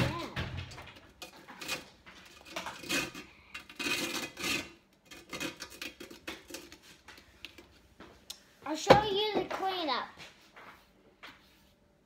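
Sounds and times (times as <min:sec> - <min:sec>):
utensil scraping metal pan: 0:01.2 - 0:06.9.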